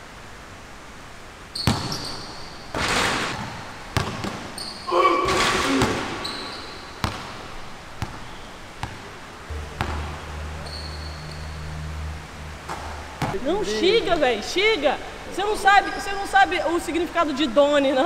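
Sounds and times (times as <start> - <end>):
sneakers squeaking on floor: 1.5 - 11.7
basketball bouncing on hard court: 1.6 - 9.1, 9.8 - 10.1.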